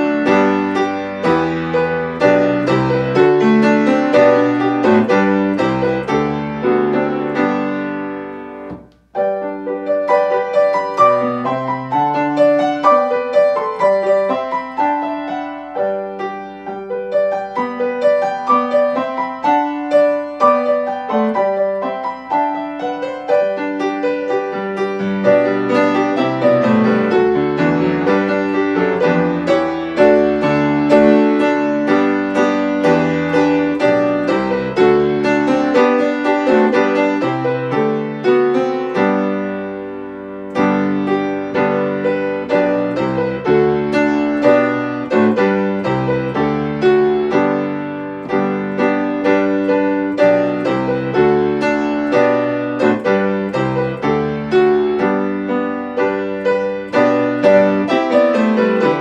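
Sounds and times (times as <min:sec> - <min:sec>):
solo piano playing hymn chords: 0:00.0 - 0:59.0.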